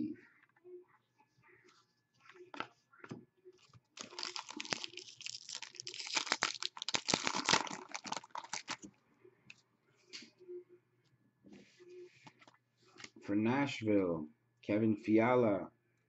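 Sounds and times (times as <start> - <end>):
foil wrapper tearing and crinkling: 4.0 - 8.8.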